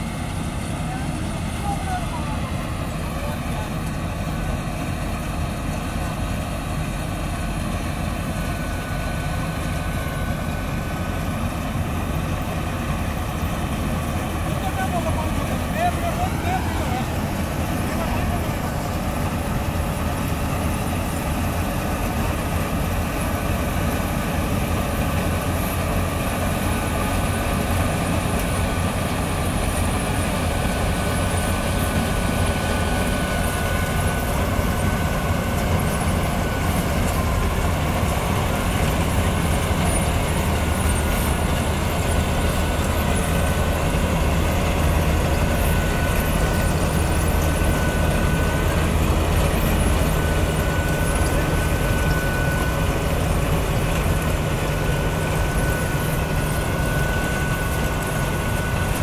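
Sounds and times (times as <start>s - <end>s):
diesel engine humming: 0.0s - 59.0s
thin whine: 7.7s - 59.0s.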